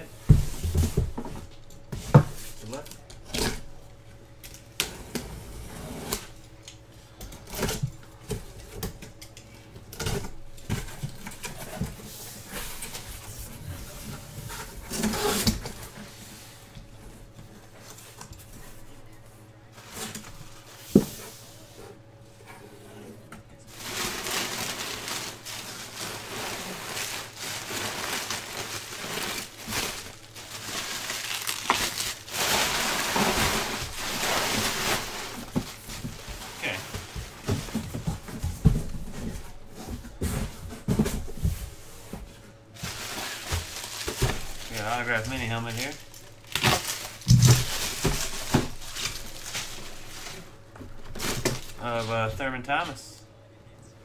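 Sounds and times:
bubble wrap crinkling: 23.7 - 38.0, 42.7 - 52.2.

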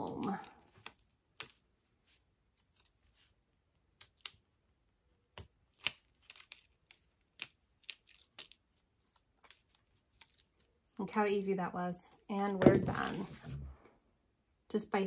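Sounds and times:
vinyl peeling ticks and crackles: 0.0 - 11.5.

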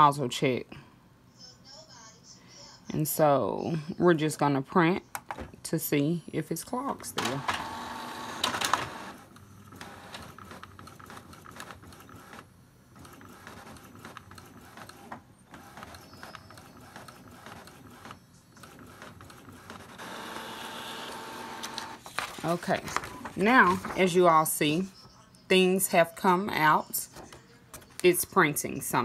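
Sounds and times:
inkjet printer clicking and whirring: 7.1 - 24.2.

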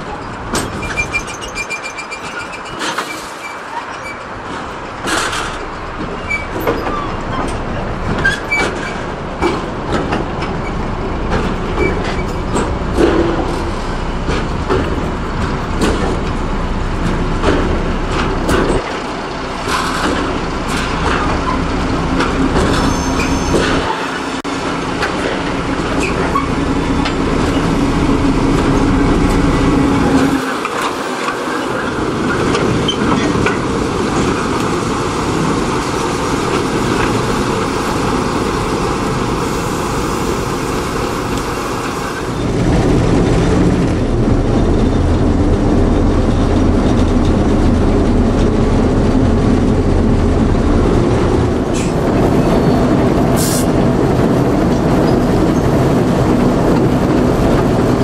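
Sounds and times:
diesel locomotive engine rumble: 0.0 - 58.0
wagons clanking on track: 0.0 - 58.0
steady engine drone: 23.5 - 58.0.

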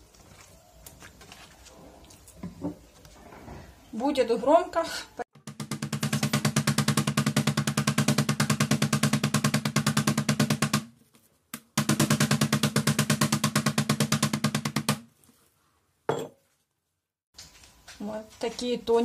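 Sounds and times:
meat mallet pounding on cutting board: 5.4 - 10.8, 11.8 - 15.0.

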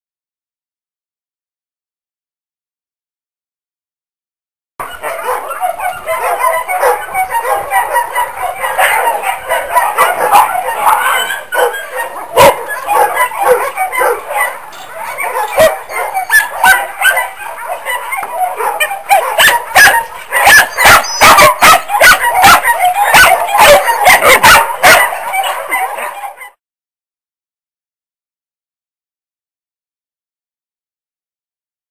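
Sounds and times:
dogs barking and yelping: 4.8 - 26.6.

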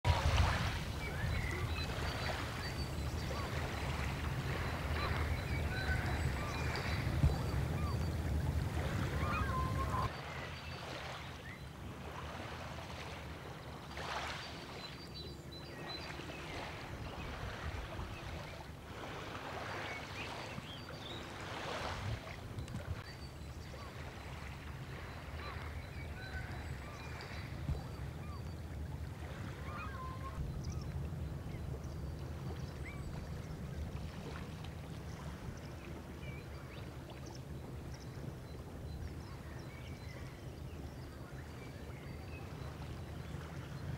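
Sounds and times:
small waves lapping: 0.0 - 43.9.

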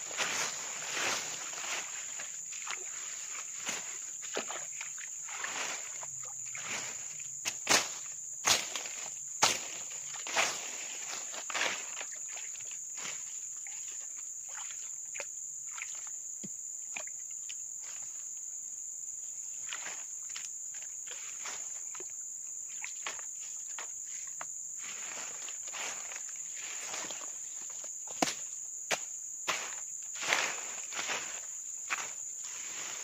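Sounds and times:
hands clearing leaves and mud: 0.0 - 12.4, 29.5 - 33.0
insects buzzing: 0.0 - 33.0.

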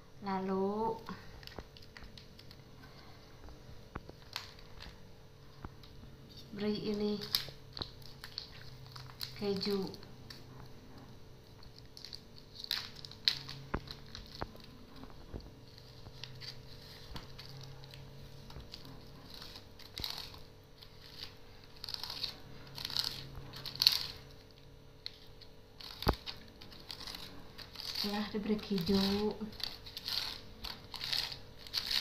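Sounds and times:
cheese grating on metal grater: 25.8 - 32.0.

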